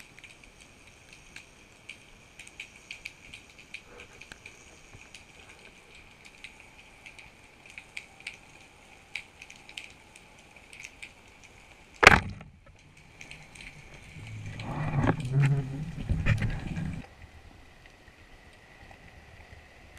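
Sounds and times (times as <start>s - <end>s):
faint underwater clicks: 0.0s - 19.7s
speargun firing crack: 12.0s - 12.5s.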